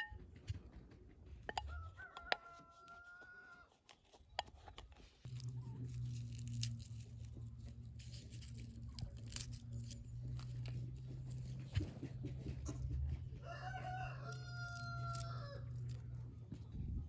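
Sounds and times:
garlic peel crackling: 3.6s - 12.1s, 14.1s - 16.7s.

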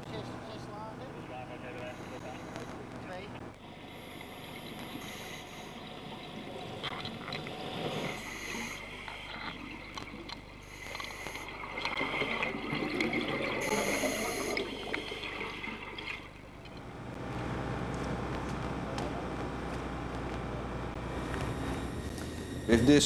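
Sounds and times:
regulator breathing hiss: 1.8s - 2.8s, 3.6s - 5.9s, 7.7s - 9.0s, 10.6s - 11.6s, 13.6s - 14.7s
exhaled bubbles gurgling: 3.6s - 17.2s.

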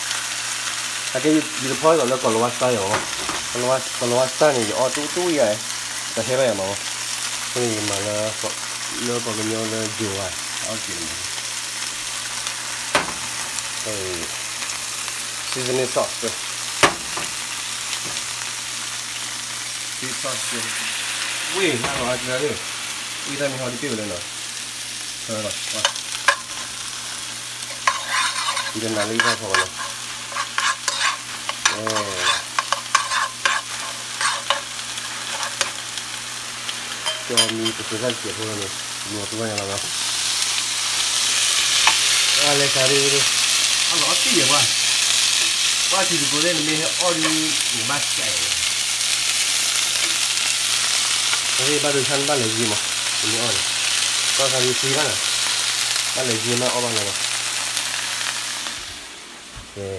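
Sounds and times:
food sizzling in a pan: 0.0s - 59.9s
utensil scraping a pan: 27.6s - 35.8s.

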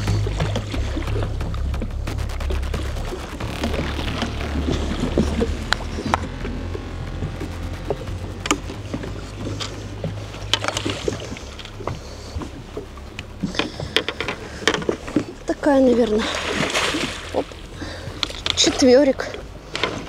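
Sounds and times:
boat engine low rumble: 0.0s - 20.0s.

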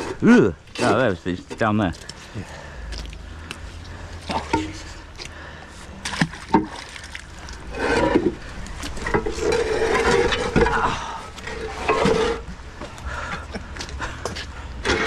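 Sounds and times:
metal scraping on concrete: 7.6s - 12.6s, 14.8s - 15.0s.

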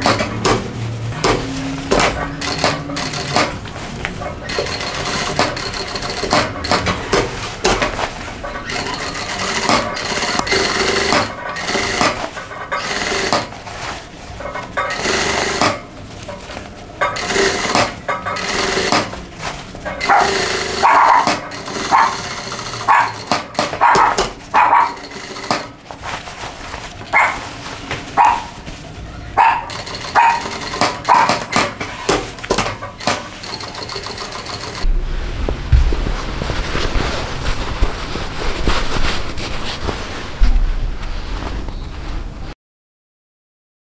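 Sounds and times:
sewing machine stitching: 0.0s - 3.7s, 4.4s - 13.8s, 14.5s - 15.9s, 17.0s - 19.2s, 19.8s - 25.8s, 29.5s - 34.9s
dog barking: 20.0s - 22.2s, 22.9s - 23.2s, 23.8s - 25.0s, 27.1s - 27.5s, 28.2s - 28.6s, 29.4s - 31.4s.

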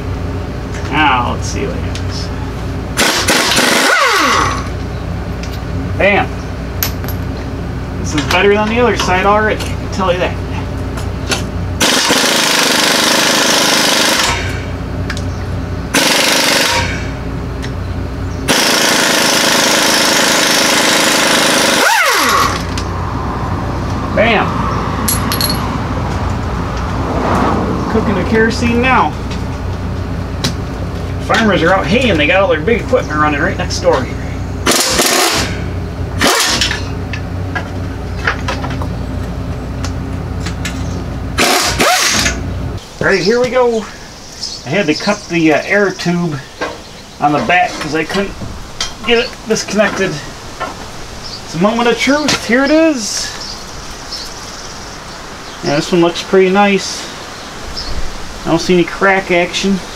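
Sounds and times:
farm machinery engine drone: 0.0s - 53.4s
motor winding down whine: 3.0s - 4.8s, 18.5s - 23.2s
impact wrench hammering: 15.9s - 17.2s, 25.0s - 25.7s, 34.6s - 35.6s, 41.4s - 42.4s.

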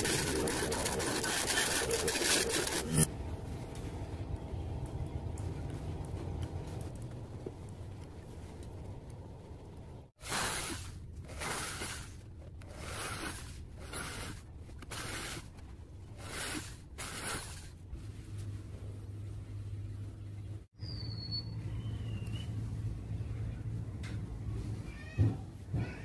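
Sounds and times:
hand scraping plastic disc: 0.0s - 3.1s, 10.2s - 17.8s.

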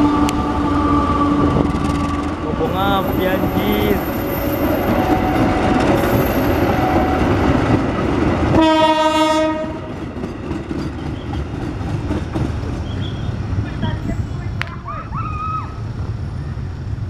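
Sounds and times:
train horn: 0.0s - 1.6s, 4.5s - 7.5s, 8.5s - 10.0s
train wheels rolling on rails: 0.0s - 15.0s.

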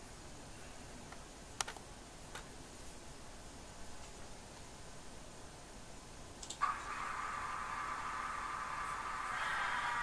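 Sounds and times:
small clicks: 6.4s - 6.6s
model locomotive engine sound: 6.6s - 10.0s.

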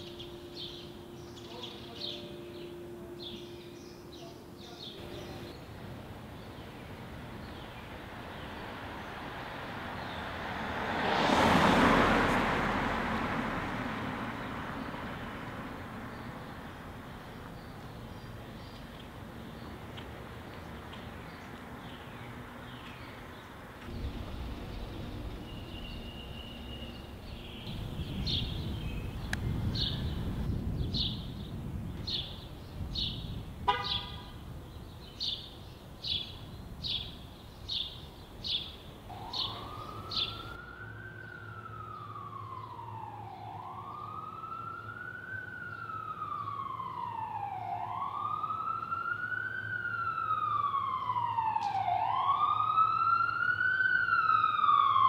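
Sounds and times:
emergency vehicle siren wailing: 0.0s - 5.5s, 39.0s - 55.0s
low traffic rumble: 0.0s - 55.0s.

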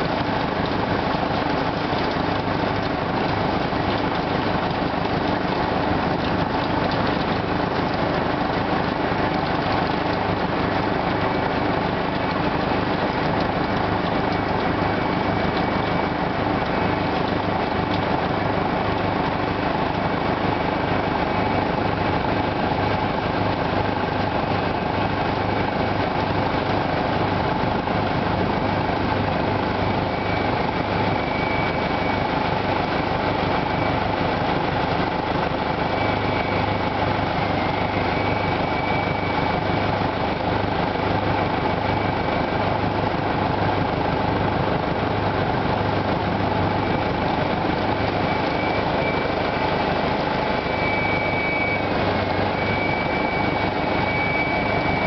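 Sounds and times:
tractor engine under load: 0.0s - 54.2s
beet harvester running: 0.0s - 55.0s.

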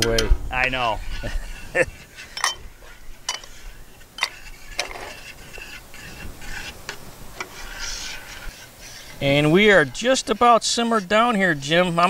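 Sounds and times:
spoon stirring sauce in pot: 1.0s - 12.0s
spoon clinking against metal pot: 2.3s - 2.7s, 3.3s - 3.5s.

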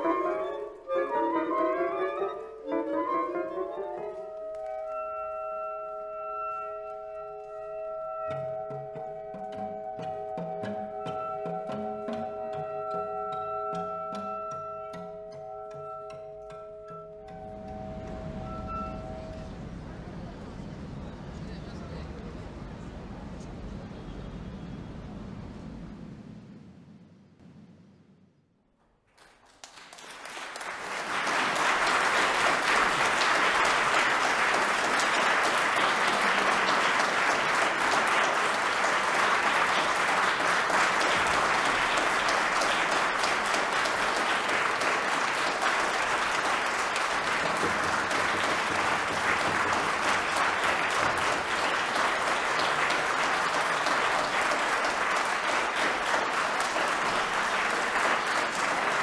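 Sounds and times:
audience applauding: 29.1s - 59.0s.

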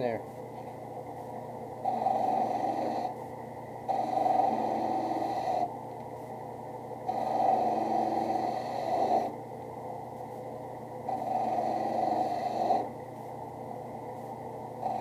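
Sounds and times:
drill press motor humming: 3.8s - 5.9s, 10.9s - 13.2s.

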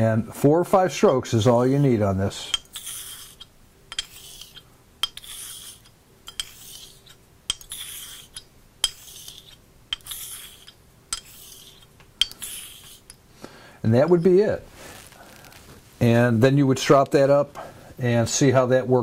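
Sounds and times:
razor scraping on hone: 1.6s - 13.2s.

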